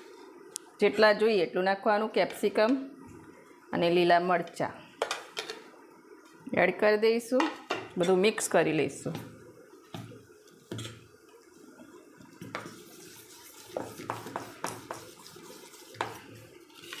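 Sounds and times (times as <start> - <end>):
spoon stirring thick batter: 11.9 - 17.0.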